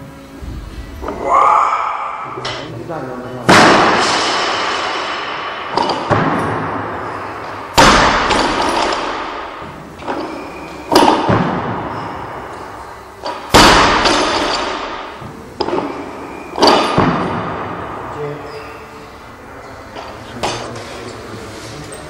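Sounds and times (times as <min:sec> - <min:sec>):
barbell crashing onto platform: 0:03.5 - 0:12.4, 0:13.2 - 0:15.9, 0:16.6 - 0:17.8
bar and plates clanking: 0:03.9 - 0:06.4, 0:08.2 - 0:09.4, 0:13.2 - 0:17.3.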